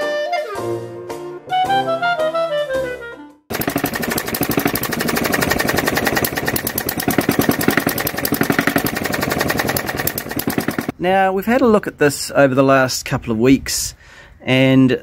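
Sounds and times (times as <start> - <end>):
model diesel engine knocking: 3.5 - 10.9.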